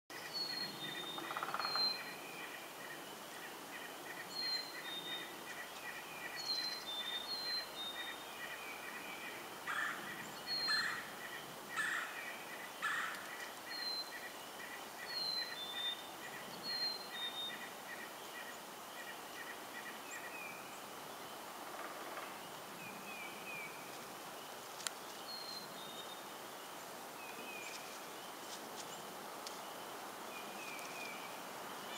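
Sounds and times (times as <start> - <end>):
louder lower bird calls: 8.9 - 20.7.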